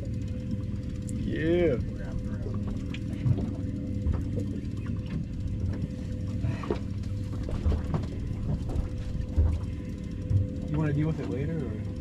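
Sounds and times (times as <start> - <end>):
outboard motor idling: 0.0 - 12.0
gear clicking and knocking: 6.7 - 11.6.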